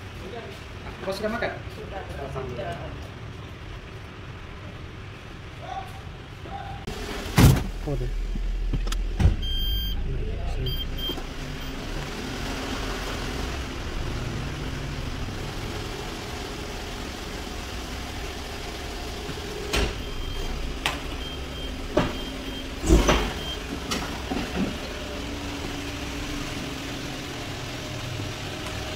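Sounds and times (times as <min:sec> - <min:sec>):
car engine idling: 0:06.9 - 0:28.9
faint beeping: 0:09.4 - 0:11.8.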